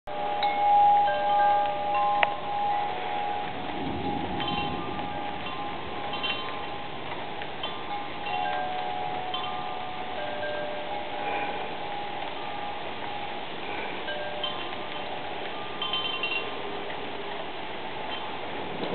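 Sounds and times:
wind chimes ringing: 0.1 - 18.9
low rumble: 2.4 - 7.6
wind rushing: 3.0 - 7.4.

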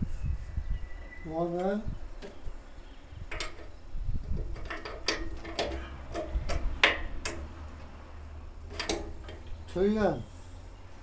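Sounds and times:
bolts clicking against metal brackets: 1.4 - 2.4, 3.2 - 8.0, 8.6 - 10.0.

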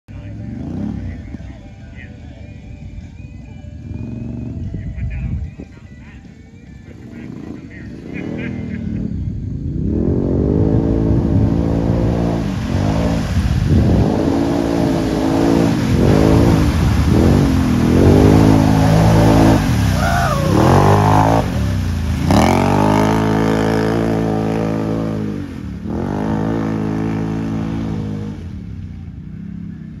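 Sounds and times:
engine revving hard: 9.7 - 28.5.

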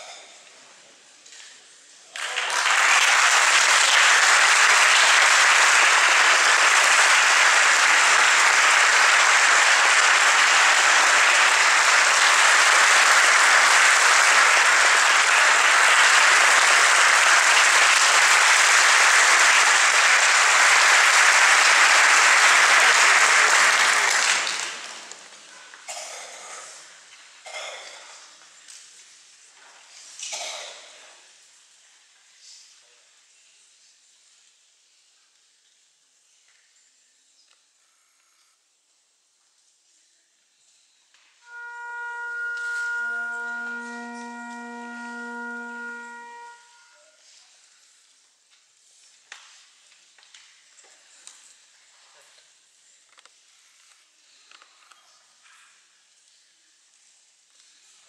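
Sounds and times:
audience applauding: 2.2 - 25.4, 42.5 - 46.6.

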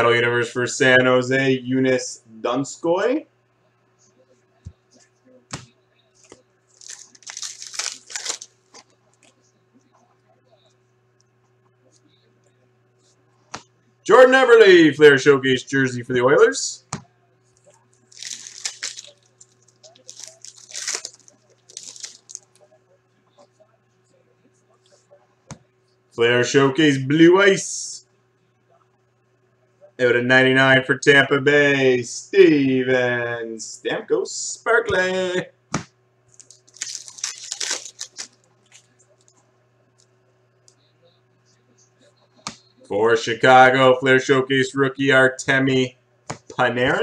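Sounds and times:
foil wrapper crinkling: 6.7 - 8.9, 18.1 - 22.6, 36.3 - 39.3
cards rustling and scraping: 6.8 - 8.9.

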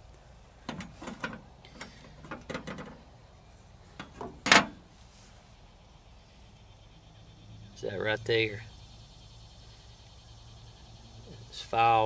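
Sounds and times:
light handling clicks and knocks: 0.6 - 3.0
metal clank on truck bed: 4.0 - 4.8.

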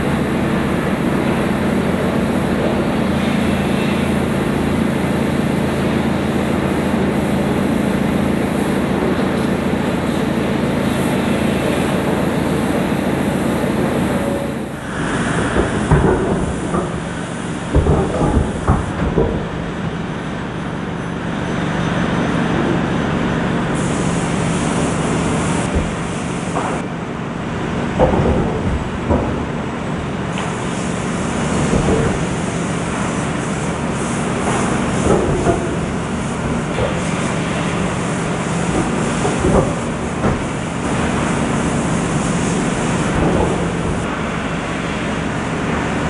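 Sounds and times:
forklift engine running: 0.0 - 46.0
machinery humming: 0.0 - 46.0
high hiss: 6.4 - 19.0.

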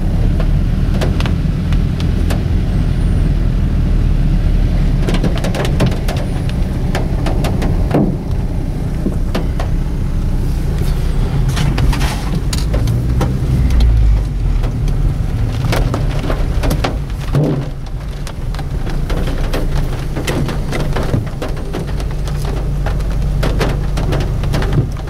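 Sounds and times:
sharp clicks and crackles: 0.0 - 2.7, 4.8 - 25.0
car engine and tyres rumbling: 0.0 - 25.0.

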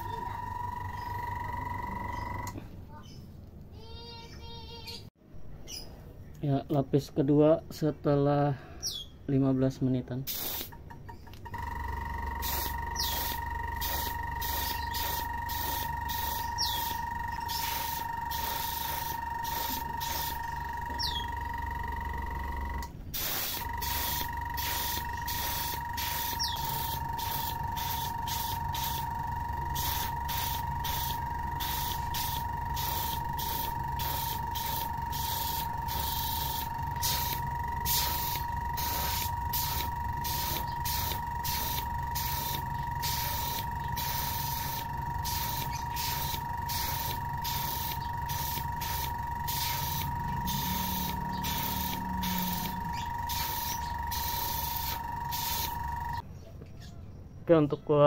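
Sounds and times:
air compressor whine and hum: 0.0 - 2.6, 11.3 - 56.2
airbrush hissing bursts: 10.3 - 10.7, 12.3 - 21.8, 23.1 - 56.2.

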